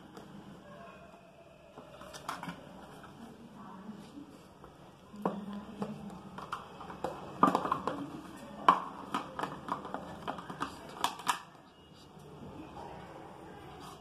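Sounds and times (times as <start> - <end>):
cardboard boxes tapping and knocking: 5.2 - 11.3.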